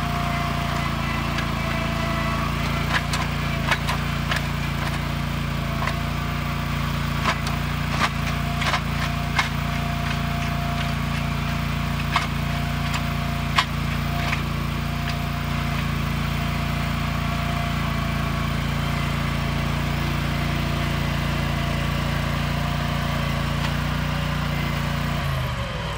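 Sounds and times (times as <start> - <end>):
hydraulic auger grinding into ground: 0.0 - 25.9
loader engine running under load: 0.0 - 25.9
auger bit knocking on hard soil: 0.2 - 16.6.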